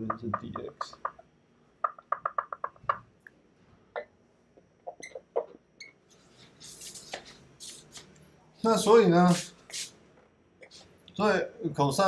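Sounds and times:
marker squeaking on whiteboard: 0.0 - 3.0, 4.8 - 8.1.

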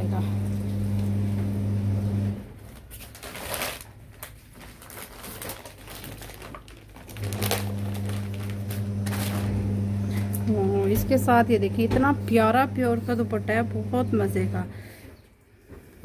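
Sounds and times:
cloth and plastic packaging rustling: 2.5 - 11.1
steady low hum: 7.3 - 14.9.

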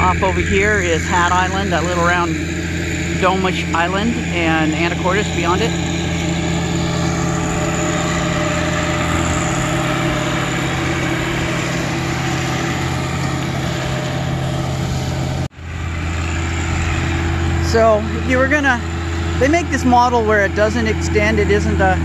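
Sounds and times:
diesel tractor engine drone: 0.0 - 22.0
flail mower cutting grass: 0.0 - 22.0.

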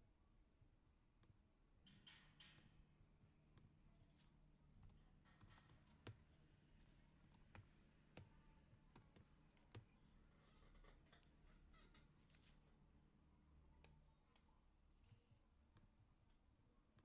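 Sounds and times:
faint low hum: 0.0 - 17.0
typing on computer keyboard: 4.8 - 6.2.

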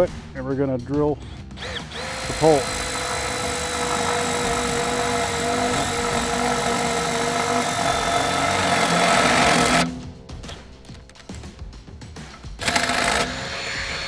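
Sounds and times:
power drill boring into pole: 1.2 - 10.0, 12.6 - 14.0.

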